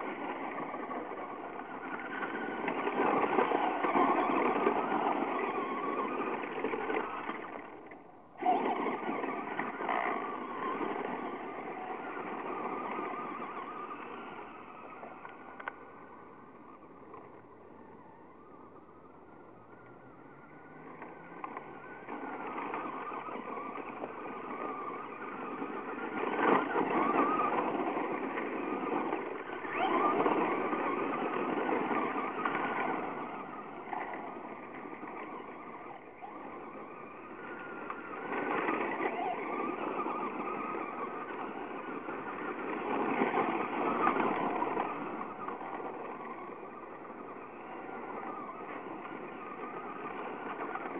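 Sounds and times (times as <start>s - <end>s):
toy truck motor: 0.0s - 50.9s
tyres crunching through gravel: 0.1s - 7.8s.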